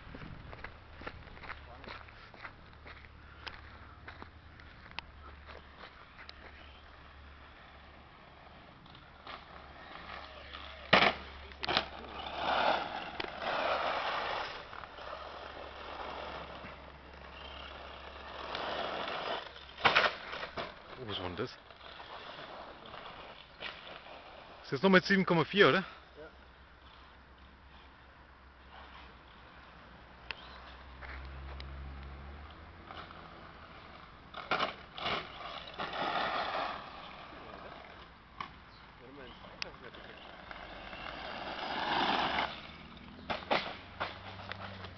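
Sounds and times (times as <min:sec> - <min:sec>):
toy truck tyres crunching gravel: 0:00.0 - 0:26.3, 0:28.6 - 0:44.9.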